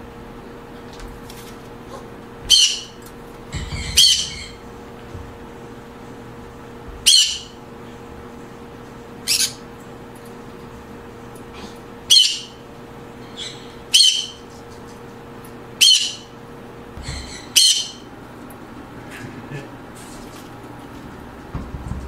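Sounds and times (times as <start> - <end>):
parrots screeching: 2.5 - 3.0, 3.6 - 4.6, 7.0 - 7.6, 9.2 - 9.6, 12.1 - 12.6, 13.2 - 14.4, 15.8 - 16.3, 17.0 - 18.1.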